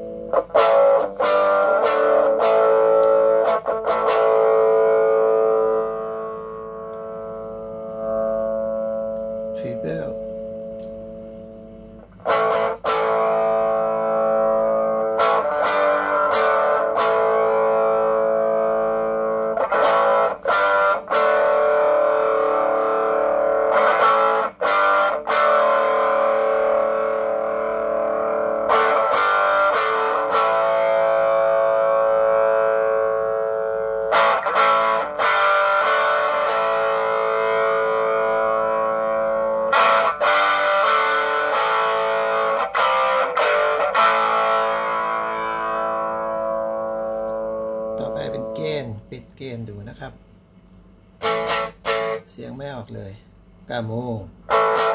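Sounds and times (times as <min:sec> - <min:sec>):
electric guitar chords ringing: 0:00.0 - 0:49.8, 0:50.4 - 0:52.4, 0:54.3 - 0:54.9.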